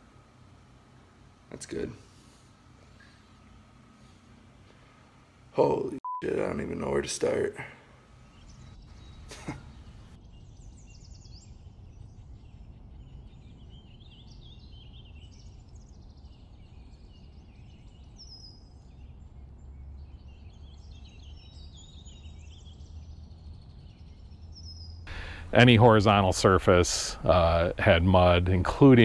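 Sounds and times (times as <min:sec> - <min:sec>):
birds chirping and trilling: 0:00.0 - 0:29.0
low steady rumble: 0:25.1 - 0:29.0.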